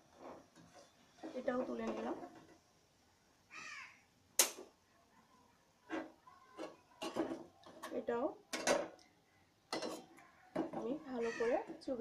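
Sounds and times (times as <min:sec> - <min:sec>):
crow cawing: 0:03.5 - 0:04.0, 0:11.2 - 0:11.7.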